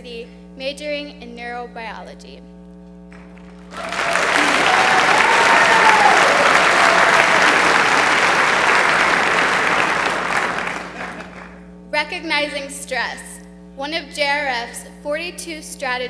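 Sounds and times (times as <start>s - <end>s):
audience applauding: 3.2s - 11.6s.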